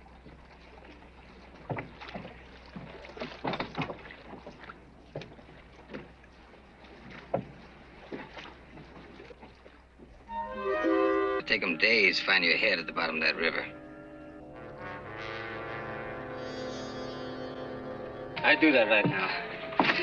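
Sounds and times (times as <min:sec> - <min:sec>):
wooden knocks and creaks: 0:01.6 - 0:06.1, 0:07.0 - 0:09.1.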